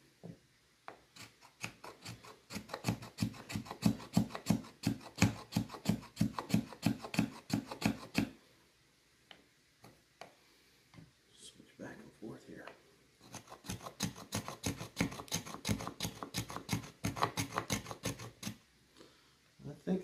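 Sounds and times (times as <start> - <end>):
knife scraping wood shavings: 1.2 - 8.2, 13.2 - 18.6.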